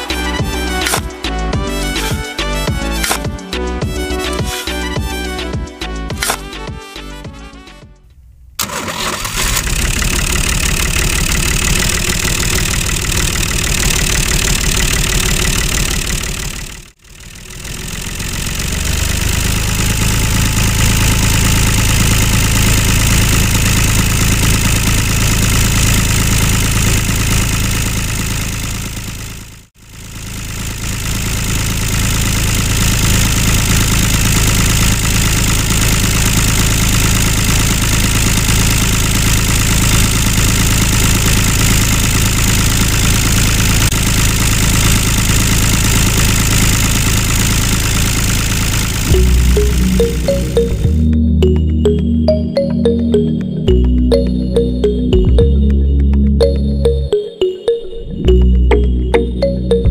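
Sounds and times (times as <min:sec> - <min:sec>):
tractor engine idling: 0:08.1 - 0:52.0.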